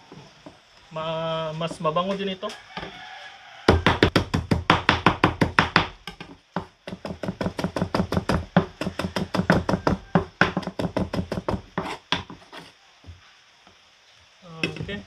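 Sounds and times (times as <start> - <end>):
knife chopping on cutting board: 3.7 - 12.7.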